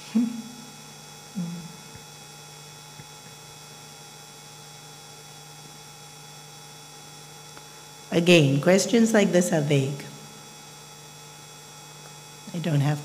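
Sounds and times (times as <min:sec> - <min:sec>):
electrical mains hum: 0:00.0 - 0:13.0
brief vocal sounds: 0:01.4 - 0:01.8.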